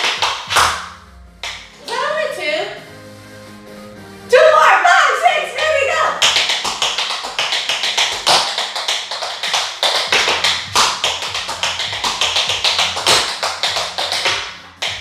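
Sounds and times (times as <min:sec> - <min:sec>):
tap shoes on hard floor: 0:05.6 - 0:15.0.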